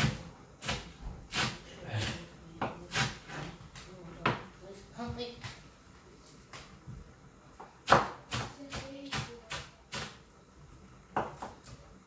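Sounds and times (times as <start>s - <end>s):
knife chopping on wooden board: 0.0s - 3.5s, 7.8s - 10.2s, 11.1s - 11.8s.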